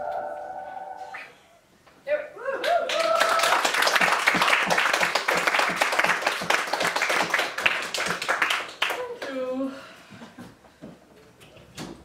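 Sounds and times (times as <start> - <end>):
person cheering: 2.4 - 3.8
audience applauding: 2.6 - 9.3.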